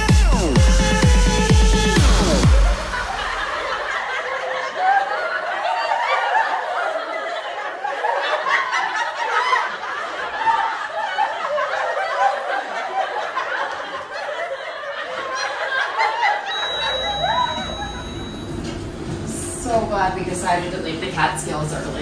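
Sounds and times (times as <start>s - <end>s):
studio audience laughing: 2.4s - 18.5s.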